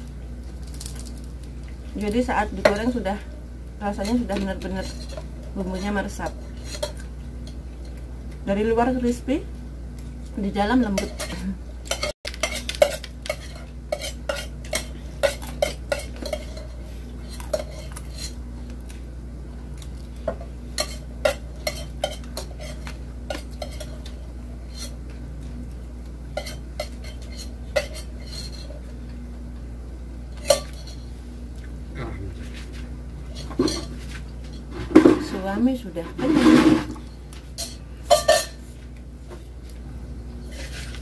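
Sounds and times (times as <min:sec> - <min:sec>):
steady low hum: 0:00.0 - 0:41.0
plates clinking: 0:37.6 - 0:38.6.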